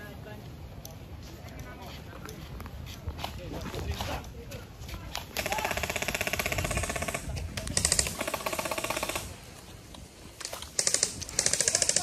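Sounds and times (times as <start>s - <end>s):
airsoft gun rapid clicking: 5.3s - 9.3s, 10.4s - 12.0s.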